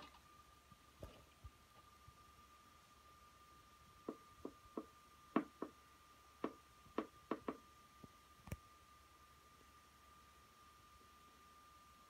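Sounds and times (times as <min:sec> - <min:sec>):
thin high hum: 0:00.0 - 0:12.0
faint irregular clicks and taps: 0:06.4 - 0:08.6.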